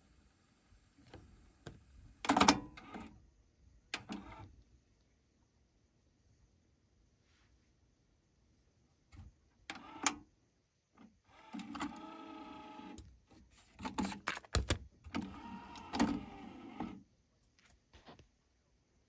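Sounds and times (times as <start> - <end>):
cassette door mechanical whir: 1.0 - 3.2, 9.7 - 10.2, 11.3 - 13.0, 15.1 - 17.0.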